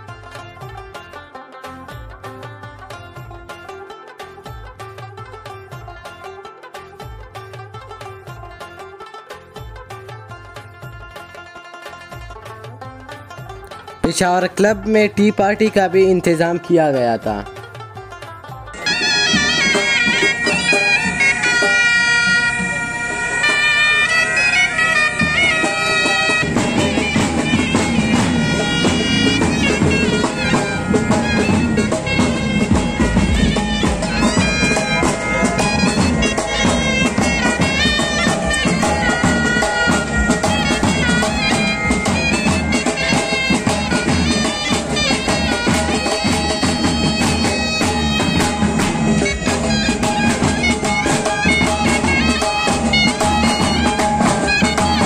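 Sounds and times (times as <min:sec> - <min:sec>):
drums beating: 0:13.3 - 0:55.0
bagpipes playing a tune: 0:18.7 - 0:55.0.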